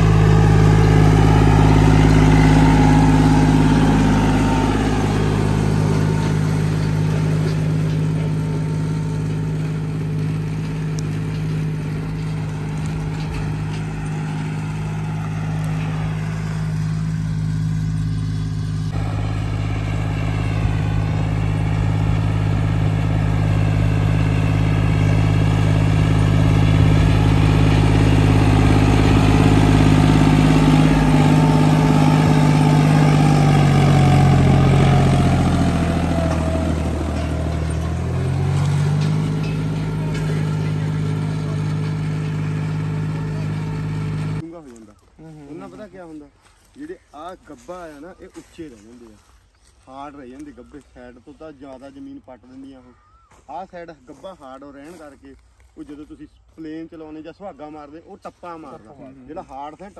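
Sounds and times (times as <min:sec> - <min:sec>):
tractor diesel engine running: 0:00.0 - 0:55.1.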